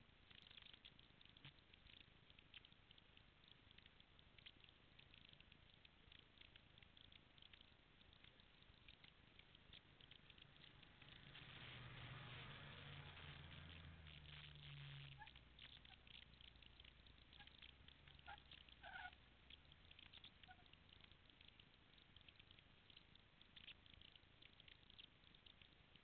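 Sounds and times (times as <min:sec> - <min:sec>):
faint ticks: 0:00.0 - 0:26.0
off-road vehicle engine hum: 0:10.4 - 0:15.6.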